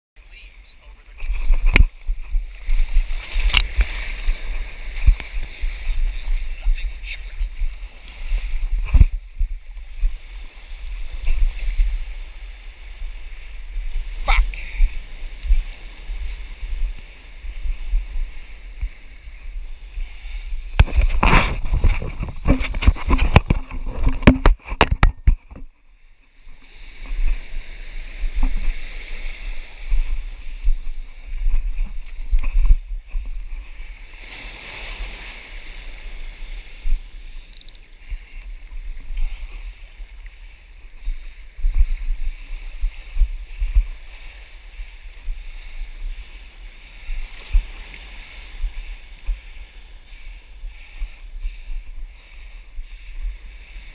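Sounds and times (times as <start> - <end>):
wind rumbling on microphone: 0.2 - 53.9
sharp knocks and clatters: 20.8 - 25.7
surf washing over cobbles: 26.2 - 41.1.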